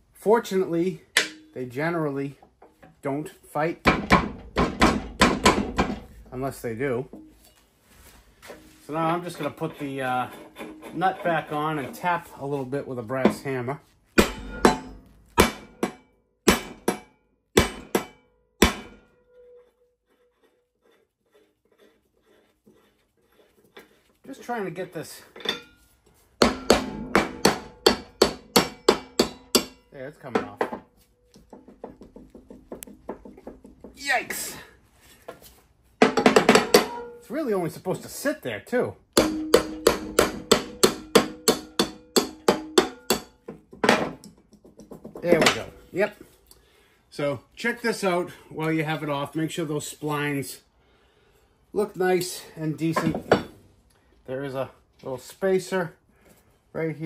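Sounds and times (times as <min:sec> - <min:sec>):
hammer striking metal: 0:01.2 - 0:01.6, 0:03.8 - 0:06.1, 0:14.2 - 0:19.4, 0:26.4 - 0:30.8, 0:36.0 - 0:37.3, 0:39.2 - 0:44.1
brass hammer tapping on metal: 0:26.4 - 0:34.0, 0:39.2 - 0:43.6.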